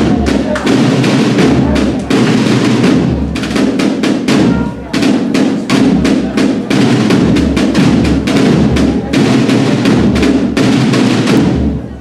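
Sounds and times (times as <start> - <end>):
snare and bass drums beating: 0.0 - 12.0
trumpets playing a march: 3.6 - 5.6.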